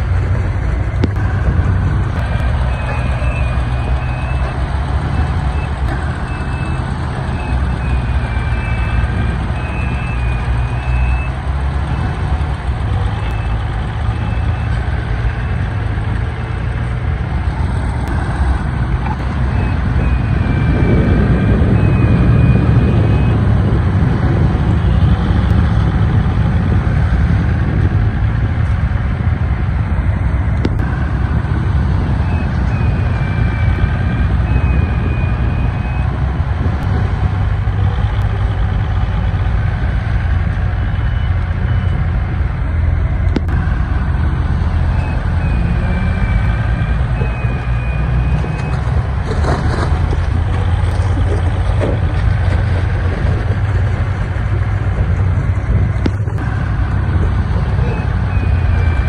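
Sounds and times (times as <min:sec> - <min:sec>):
heavy diesel engines running: 0:00.0 - 0:59.0
reversing alarm beeping: 0:01.0 - 0:12.2, 0:18.1 - 0:23.5, 0:32.1 - 0:36.2, 0:44.6 - 0:49.0, 0:56.2 - 0:59.0.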